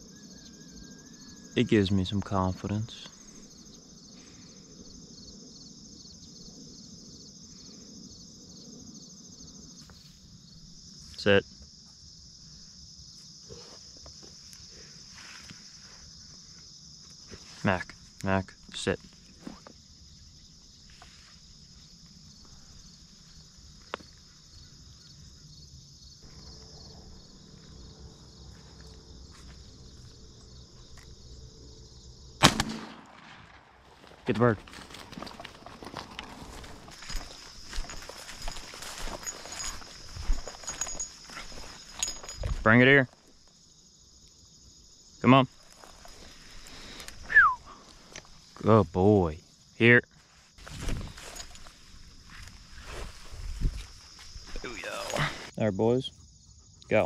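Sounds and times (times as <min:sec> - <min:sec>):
crickets and insects chirping: 0:00.0 - 0:57.0.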